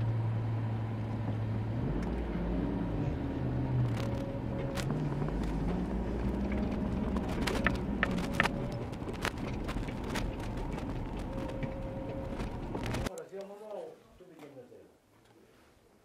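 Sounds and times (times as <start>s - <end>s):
car engine running: 0.0s - 13.1s
knocks and rattles from bumps: 3.9s - 13.1s.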